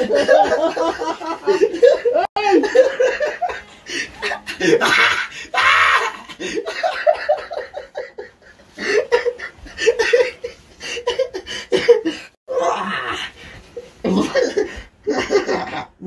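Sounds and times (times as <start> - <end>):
man laughing hard: 0.0 - 12.3, 14.1 - 15.8.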